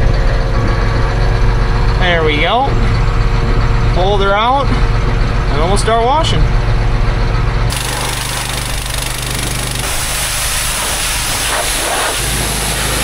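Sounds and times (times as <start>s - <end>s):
engine hum: 0.0s - 13.0s
pressure washer water jet hissing: 7.7s - 13.0s.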